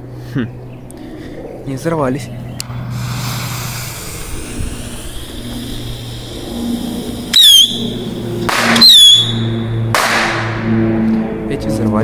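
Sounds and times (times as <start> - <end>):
firecracker hissing fizz: 2.8 - 9.3
shrill firework whistle: 7.3 - 8.0, 8.7 - 9.6.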